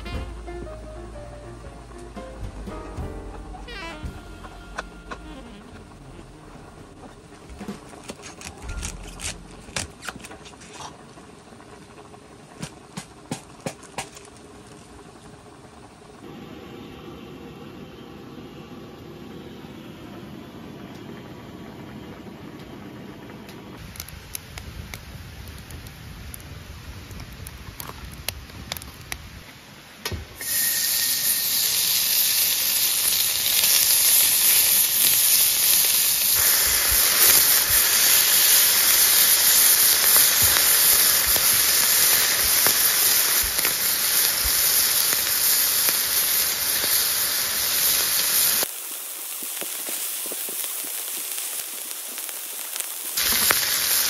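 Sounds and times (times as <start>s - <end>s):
wood fire crackling and popping: 4.8s - 16.2s, 23.5s - 30.2s, 31.6s - 54.0s
meat sizzling on a griddle: 30.4s - 54.0s.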